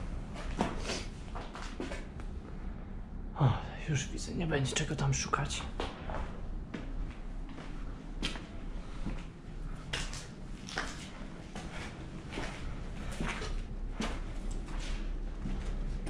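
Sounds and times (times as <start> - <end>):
steady low rumble: 0.0 - 16.0
footsteps on gritty concrete stairs: 5.8 - 15.9.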